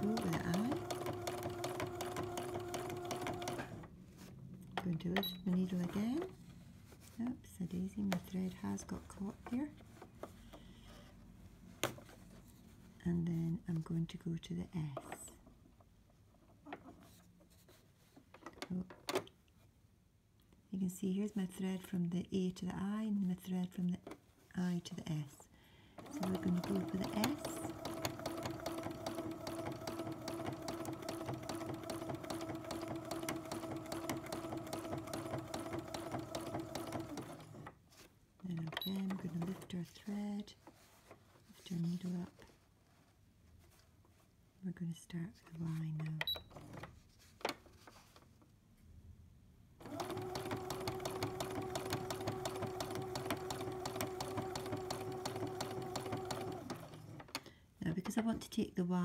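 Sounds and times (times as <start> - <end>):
sewing machine stitching: 0.0 - 3.9, 26.0 - 37.8, 49.8 - 57.4.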